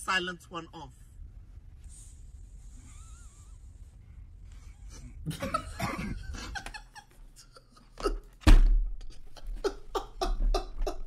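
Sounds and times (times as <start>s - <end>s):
man laughing: 5.2s - 8.4s, 9.0s - 11.0s.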